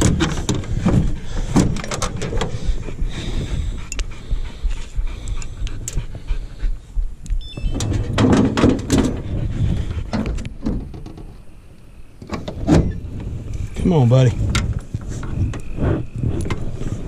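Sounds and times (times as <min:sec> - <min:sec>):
dog panting: 0:00.7 - 0:07.4, 0:08.9 - 0:10.4.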